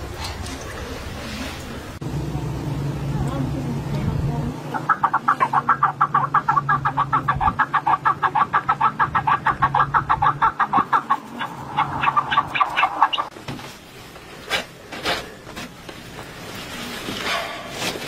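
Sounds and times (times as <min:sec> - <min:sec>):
chicken clucking: 0:04.7 - 0:13.3.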